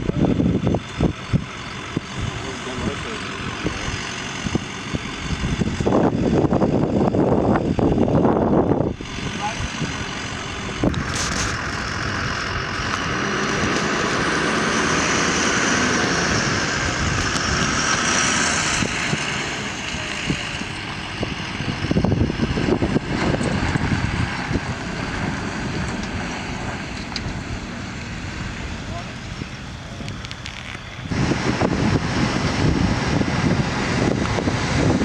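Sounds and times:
fire engine running: 0.0s - 35.0s.

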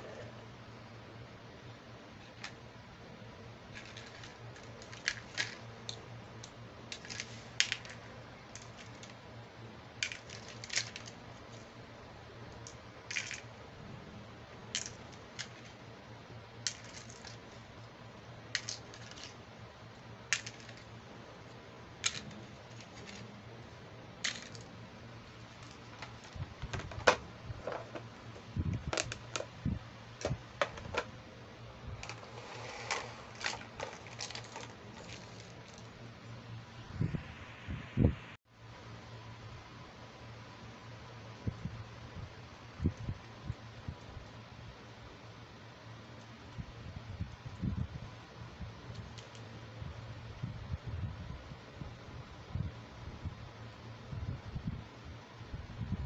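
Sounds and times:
plastic toy pieces clicking: 3.8s - 6.0s, 10.0s - 11.2s, 12.6s - 13.5s, 14.7s - 15.7s, 18.6s - 19.4s, 20.3s - 20.9s, 22.0s - 23.3s.

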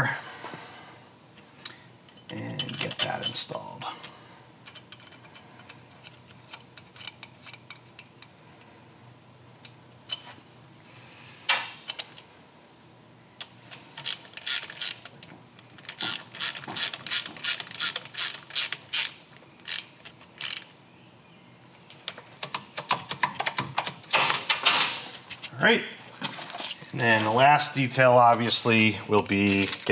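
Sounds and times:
hand ratchet clicking: 16.0s - 20.7s.

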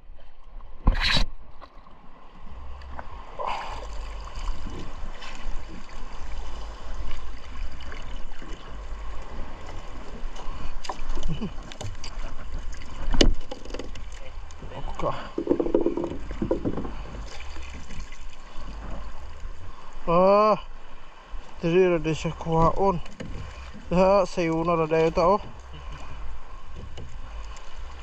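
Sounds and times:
water splashing and dripping: 2.8s - 19.5s
sharp knocks: 15.4s - 16.9s.

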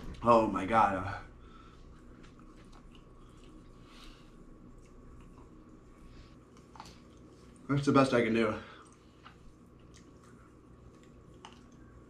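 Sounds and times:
low steady hum: 0.0s - 12.0s
chewing and biting: 2.2s - 3.8s, 4.6s - 5.8s, 8.8s - 12.0s.

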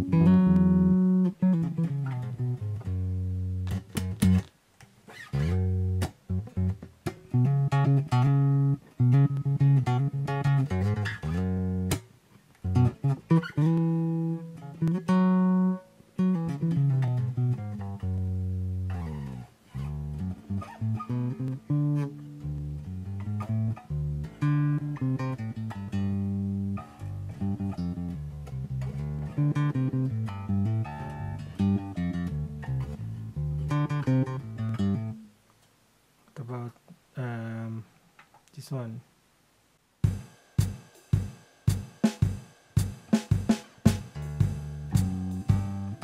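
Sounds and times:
electric bass plucked notes: 0.0s - 4.5s, 5.3s - 35.3s, 43.9s - 46.0s.

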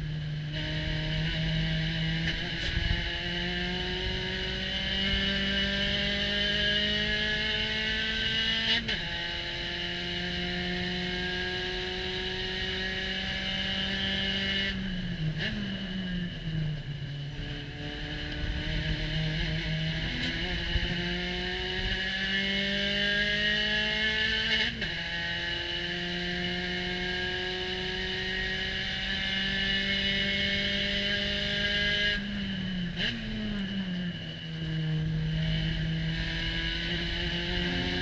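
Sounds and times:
race car engine revving: 0.4s - 38.0s
wind noise: 2.3s - 5.3s, 35.5s - 38.0s.

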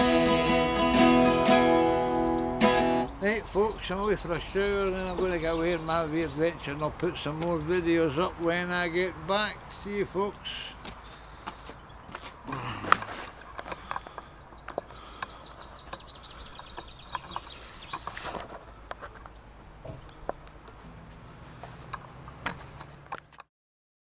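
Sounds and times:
bird ticking trill: 0.4s - 10.3s, 14.0s - 18.1s.

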